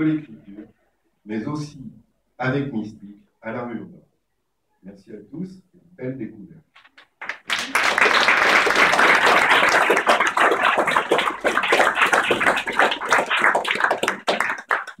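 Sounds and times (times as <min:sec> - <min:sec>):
crowd applauding: 0:07.2 - 0:15.0.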